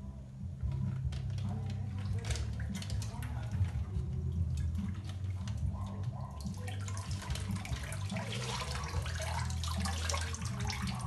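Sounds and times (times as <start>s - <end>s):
water sloshing and running off: 1.1s - 11.0s.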